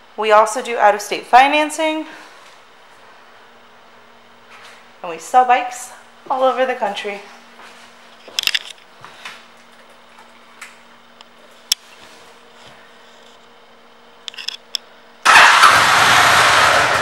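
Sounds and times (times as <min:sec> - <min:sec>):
motorcycle engine running: 0:15.2 - 0:17.0.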